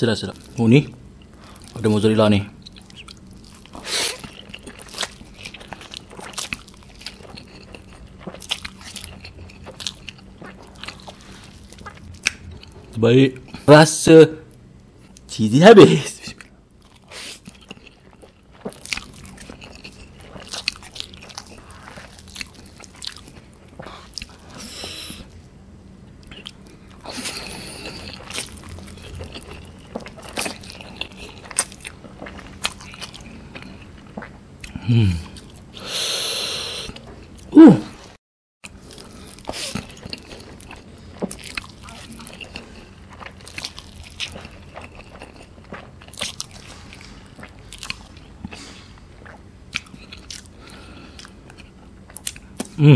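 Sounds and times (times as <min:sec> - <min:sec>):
wet chewing and lip-smacking: 0:02.6 - 0:13.0, 0:16.4 - 0:24.6, 0:26.2 - 0:35.6, 0:38.6 - 0:52.8.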